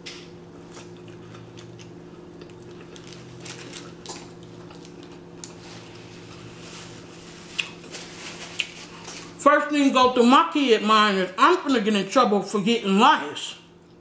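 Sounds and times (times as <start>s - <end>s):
steady low hum: 0.0s - 14.0s
paper napkin rustle: 5.6s - 9.4s.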